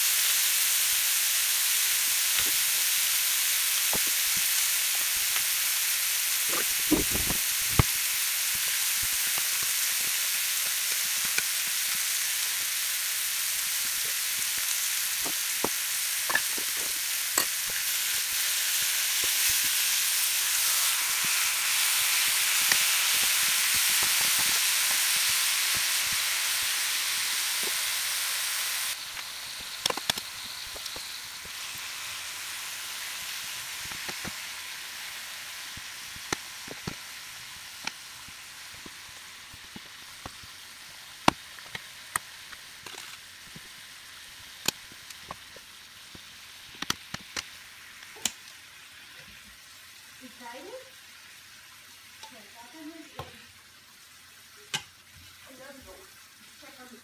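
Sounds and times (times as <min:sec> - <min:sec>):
meat sizzling in a skillet: 0:00.0 - 0:57.0
fat popping: 0:06.5 - 0:07.9.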